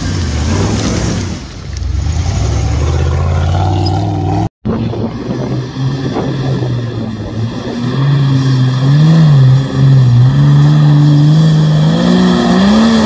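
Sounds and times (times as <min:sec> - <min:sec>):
off-road vehicle engine revving: 0:00.0 - 0:13.0.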